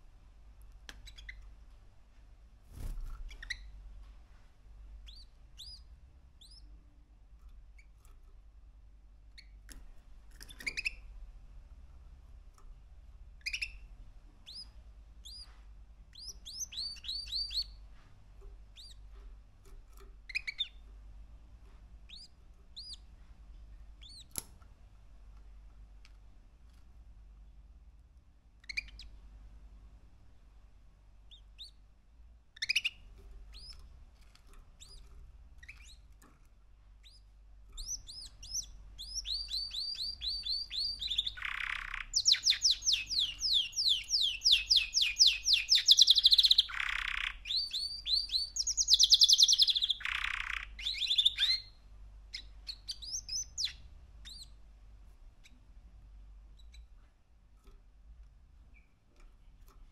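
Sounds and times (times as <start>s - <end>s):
canary singing: 0.9s - 1.6s, 2.8s - 3.9s, 4.9s - 6.8s, 7.6s - 8.3s, 9.2s - 11.3s, 13.3s - 23.2s, 23.8s - 24.5s, 28.6s - 29.2s, 31.2s - 31.9s, 32.5s - 54.7s, 55.4s - 57.0s, 58.5s - 59.9s.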